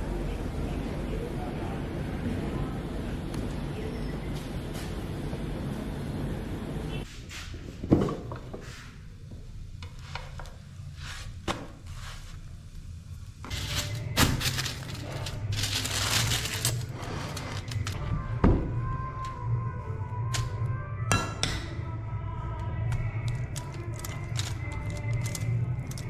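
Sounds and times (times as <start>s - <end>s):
aluminium foil crinkling: 13.5s - 18.0s, 23.2s - 26.0s.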